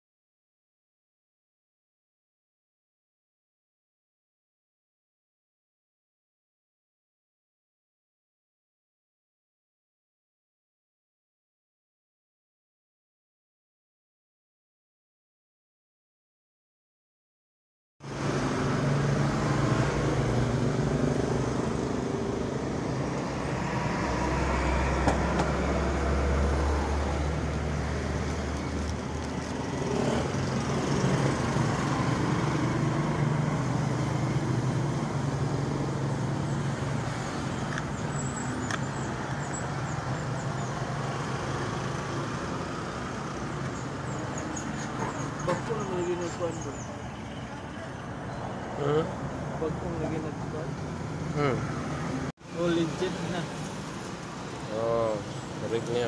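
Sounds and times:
road traffic: 0:18.0 - 0:56.0.

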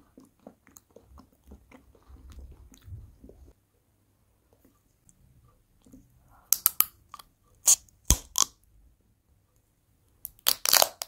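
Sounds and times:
candy crunching in mouth: 0:07.7 - 0:08.5, 0:10.3 - 0:11.0.

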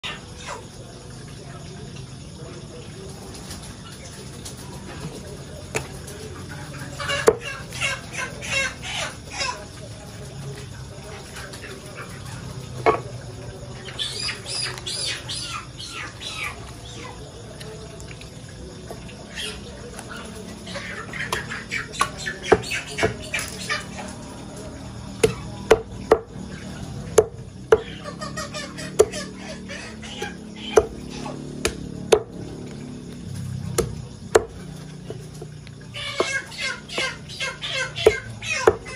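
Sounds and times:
chicken clucking: 0:03.2 - 0:17.8, 0:18.7 - 0:27.0, 0:27.7 - 0:31.4, 0:34.8 - 0:38.9
cleaver chopping on wooden block: 0:30.8 - 0:31.0, 0:31.6 - 0:32.3, 0:33.8 - 0:34.6.

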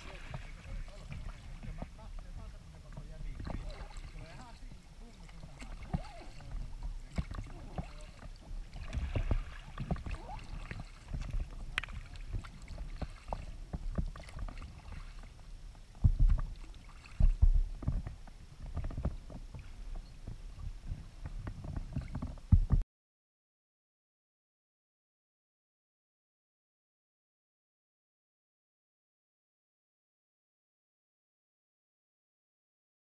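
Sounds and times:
paddle blades dipping in water: 0:00.0 - 0:22.8
water lapping against hull: 0:00.0 - 0:22.8
low thumps: 0:16.0 - 0:22.8.

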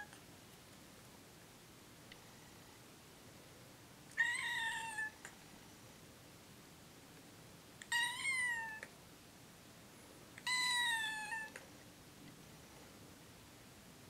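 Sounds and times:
kitten meowing: 0:04.2 - 0:05.2, 0:07.8 - 0:08.9, 0:10.4 - 0:11.6.

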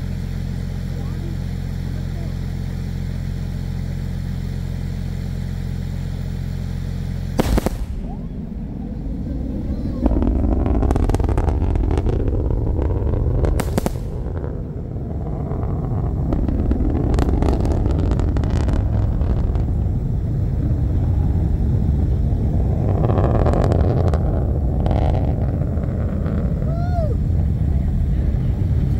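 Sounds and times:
deep rolling rumble: 0:00.0 - 0:28.9
sharp sonic boom crack: 0:07.3 - 0:20.8
sonic boom thud: 0:07.4 - 0:21.3
crackles: 0:07.4 - 0:28.9.

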